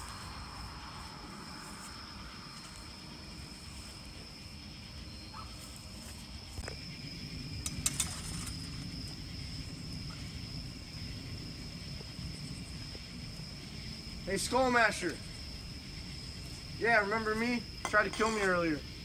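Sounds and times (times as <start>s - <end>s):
low rumbling noise: 0.0s - 17.8s
high-pitched insect drone: 0.0s - 19.0s.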